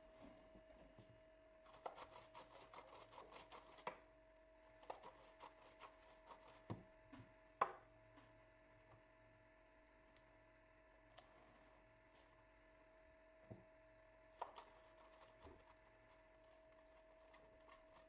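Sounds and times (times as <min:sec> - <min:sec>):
dough rasping on a grater: 0:01.7 - 0:03.9.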